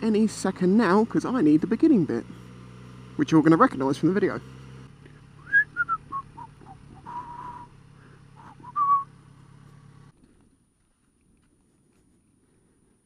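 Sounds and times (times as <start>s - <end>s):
motorcycle engine idling: 0.0s - 13.0s
person whistling a tune: 5.4s - 7.7s, 8.4s - 9.1s.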